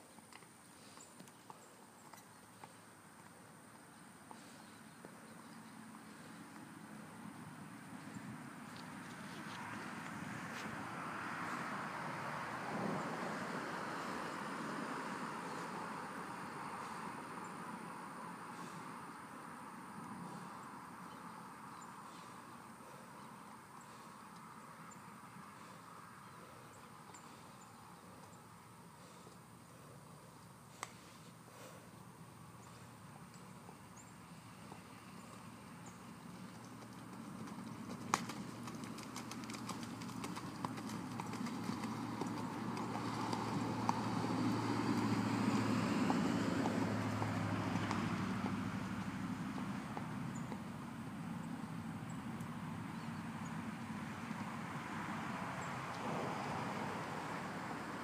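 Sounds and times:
faint outdoor hiss: 0:00.0 - 0:58.0
horse hoofbeats on sand: 0:35.9 - 0:50.7.

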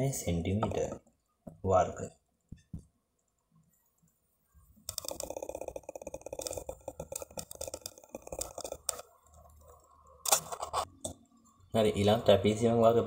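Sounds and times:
eraser scrubbing whiteboard: 0:04.9 - 0:09.0.

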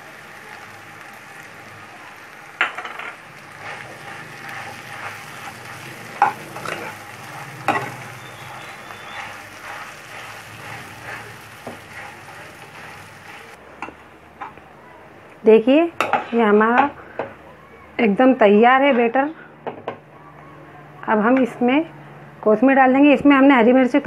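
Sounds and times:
faint sizzle: 0:00.0 - 0:19.4
spatula mashing potato in pan: 0:03.3 - 0:13.6.

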